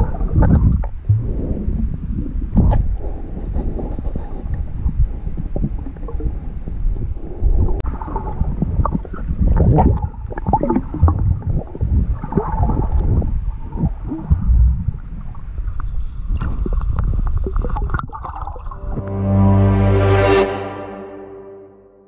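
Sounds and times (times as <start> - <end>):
underwater rumble of moving water: 0.0 - 18.8.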